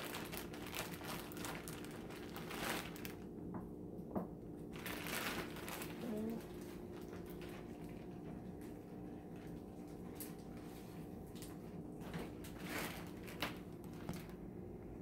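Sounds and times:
faint appliance hum: 0:00.0 - 0:15.0
soft clicks and rustles: 0:05.4 - 0:14.4.

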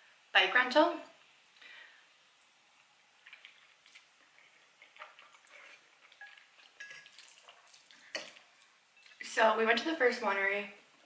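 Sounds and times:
fork scraping ceramic bowl: 0:04.4 - 0:08.3.

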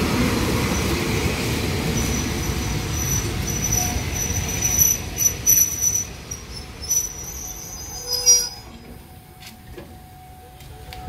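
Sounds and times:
low train rumble: 0:00.0 - 0:11.0
train wheels and brakes squealing: 0:01.9 - 0:10.4.

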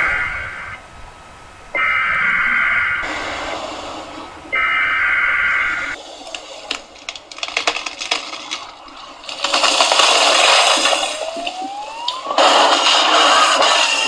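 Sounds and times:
loud rush of noise: 0:00.0 - 0:06.0
sharp crackles and snaps: 0:06.2 - 0:13.9.

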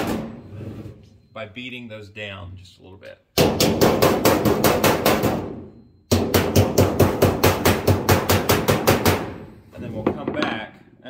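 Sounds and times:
hammer tapping on sheet metal: 0:03.4 - 0:09.4.

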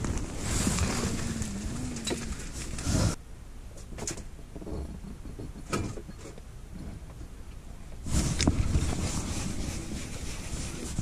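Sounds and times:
wind buffeting microphone: 0:08.0 - 0:11.0.

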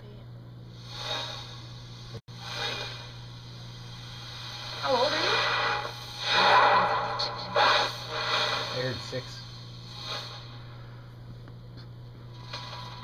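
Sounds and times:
low hum: 0:00.0 - 0:13.0
breathy hiss: 0:00.7 - 0:06.6, 0:07.6 - 0:11.1.

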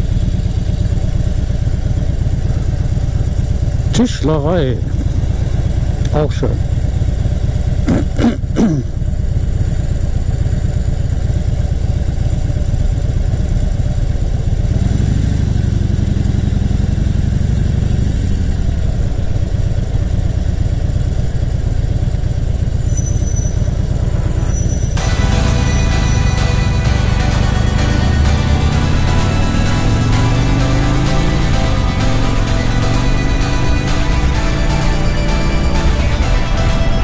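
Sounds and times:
motorcycle engine idling: 0:00.0 - 0:37.0
motorcycle accelerating away: 0:13.4 - 0:37.0.

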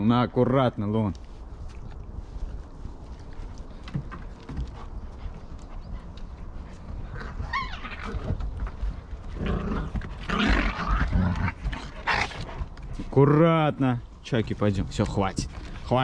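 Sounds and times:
puppy whining: 0:07.1 - 0:08.5.

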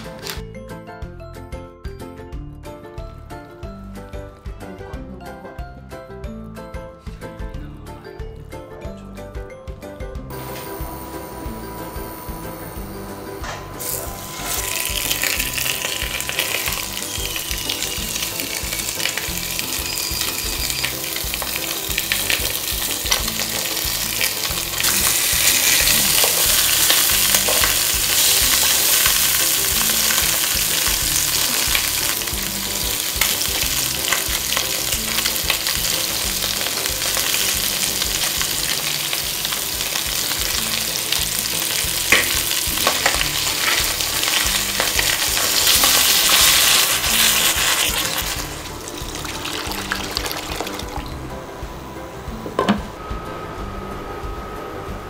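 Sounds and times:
chopsticks turning frying pieces: 0:10.3 - 0:51.2
fish frying in oil: 0:13.8 - 0:51.2.

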